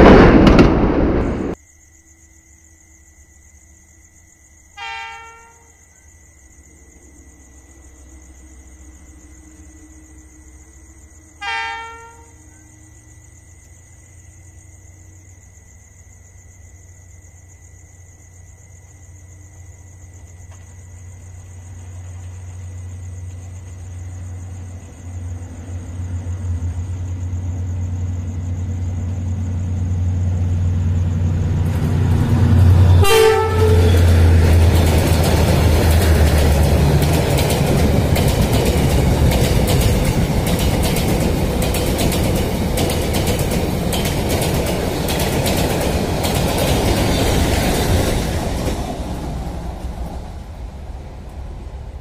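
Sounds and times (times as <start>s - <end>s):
train horn blast: 4.8s - 5.8s, 11.4s - 12.6s, 32.4s - 34.4s
train wheels clattering on rails: 20.2s - 52.0s
locomotive engine drone: 21.2s - 52.0s.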